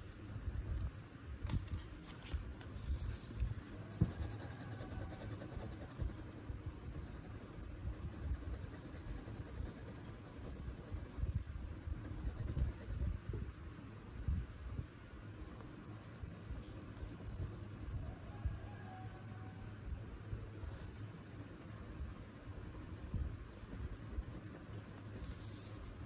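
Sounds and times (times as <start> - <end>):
paper rustling: 1.5 - 3.4
crayon scratching on paper: 2.8 - 13.3, 15.9 - 18.0, 20.4 - 26.0.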